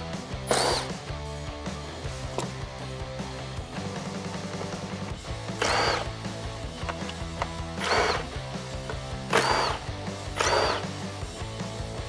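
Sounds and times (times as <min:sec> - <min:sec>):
cordless drill spinning: 0:00.5 - 0:01.0, 0:05.4 - 0:06.2, 0:06.8 - 0:11.0.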